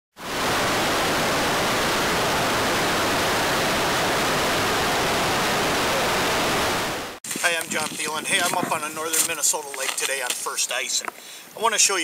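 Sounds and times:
water cascading over rocks: 0:00.2 - 0:08.6.

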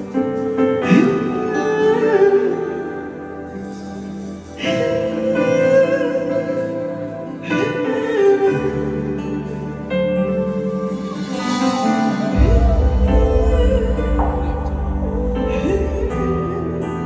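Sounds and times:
live band playing slow ballad: 0:00.0 - 0:17.0.

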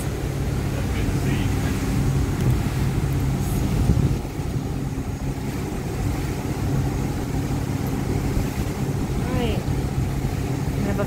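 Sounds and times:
boat engine drone: 0:00.0 - 0:11.0
rushing water and air: 0:00.0 - 0:11.0.

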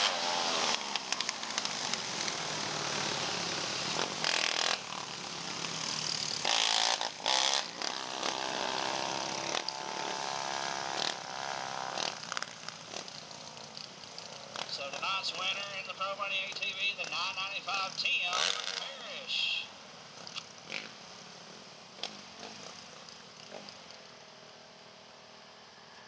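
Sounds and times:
atv engines revving: 0:00.0 - 0:25.5.

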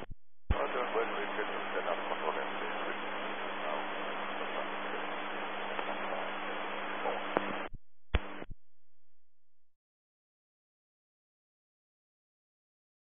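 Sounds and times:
radio static hiss: 0:00.0 - 0:08.5
low hum: 0:00.0 - 0:09.7
sharp click: 0:07.3 - 0:08.4.

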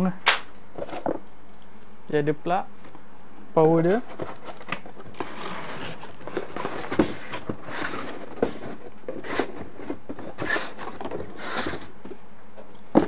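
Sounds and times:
cardboard box rustling: 0:03.8 - 0:12.0.

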